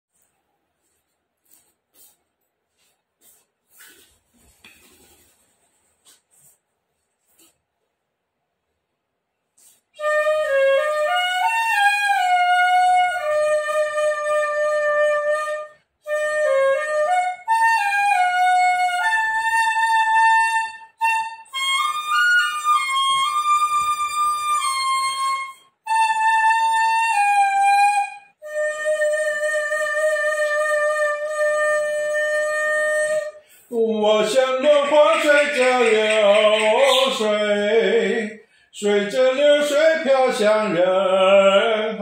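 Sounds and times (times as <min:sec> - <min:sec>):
bamboo flute melody: 0:09.6 - 0:38.2.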